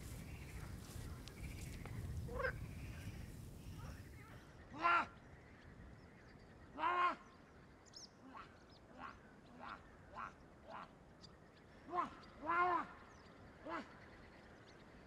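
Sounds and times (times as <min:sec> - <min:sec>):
small birds chirping: 0:00.0 - 0:15.0
duck quacking: 0:02.2 - 0:03.1.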